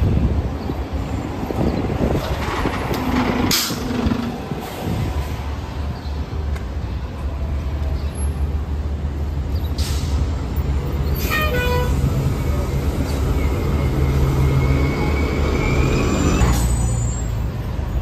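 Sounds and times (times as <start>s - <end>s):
bus engine running: 0.0s - 18.0s
brief air brake hisses: 9.7s - 10.3s.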